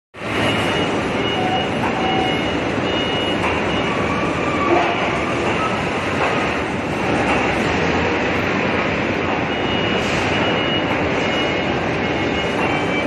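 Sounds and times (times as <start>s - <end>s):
forklift working: 0.2s - 13.0s.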